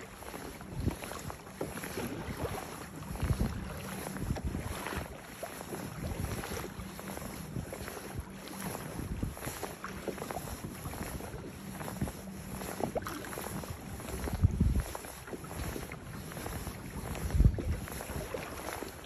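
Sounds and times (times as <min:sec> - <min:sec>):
water rushing along kayak hull: 0:00.0 - 0:19.0
wind gusting on microphone: 0:00.6 - 0:05.1, 0:05.8 - 0:19.0.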